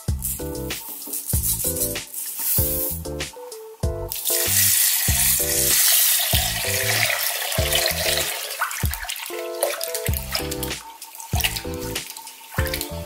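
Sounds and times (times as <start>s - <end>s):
water pouring into bowl: 4.2s - 12.9s
water sloshing: 6.4s - 12.9s.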